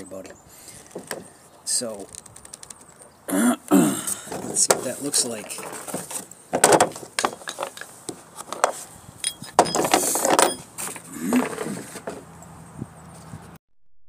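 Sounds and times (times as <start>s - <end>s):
handling clicks and knocks: 0.2s - 1.3s, 1.9s - 3.1s, 4.2s - 12.5s
rushing scrape: 9.9s - 12.2s.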